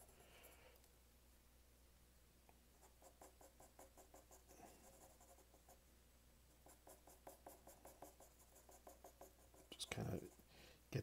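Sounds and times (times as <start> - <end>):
pencil scratching on paper: 0.0 - 0.2, 2.8 - 5.8, 6.5 - 10.5.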